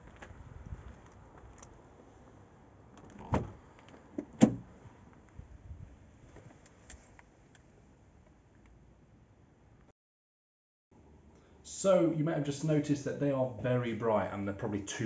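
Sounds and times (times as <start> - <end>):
car door clunk: 3.2 - 3.6, 4.2 - 4.7
car door thud: 3.3 - 3.6, 4.2 - 4.7.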